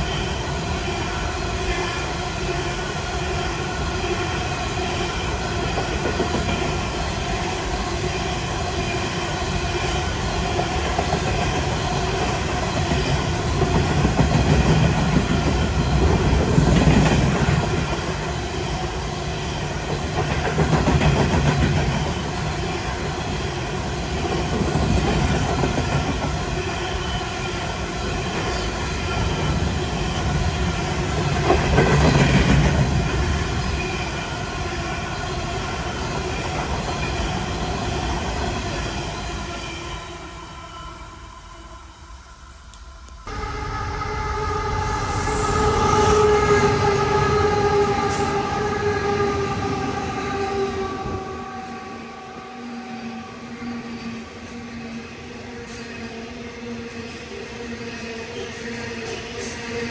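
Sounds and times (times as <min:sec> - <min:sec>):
train wheels rumbling and clattering: 0:00.0 - 0:40.2.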